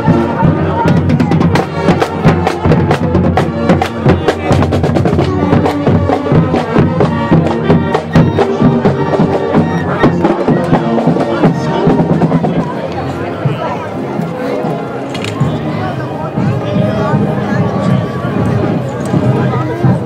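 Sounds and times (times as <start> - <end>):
steady drumbeat: 0.0 - 14.1
brass instruments: 0.0 - 20.0.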